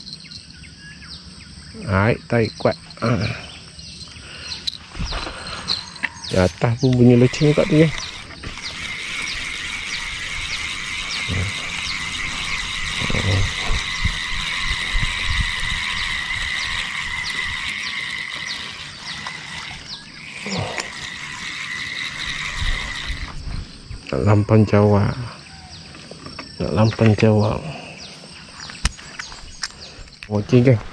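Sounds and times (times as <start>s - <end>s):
fishing reel whirring: 2.3s - 24.1s
reel handle ticking: 6.9s - 23.4s.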